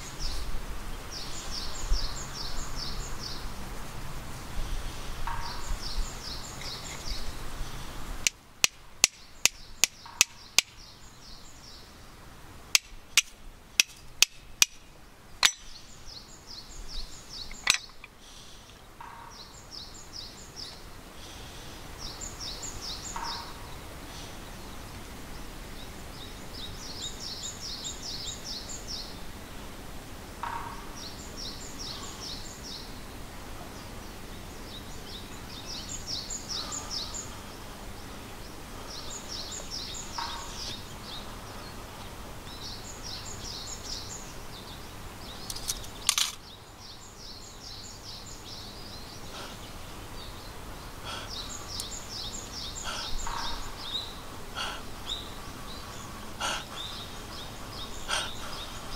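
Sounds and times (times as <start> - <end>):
outdoor background noise: 0.0 - 58.9
sharp click: 45.5 - 46.4.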